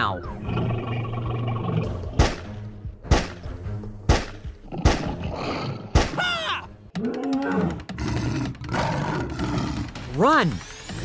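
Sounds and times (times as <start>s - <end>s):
pistol shots: 4.1s - 5.0s.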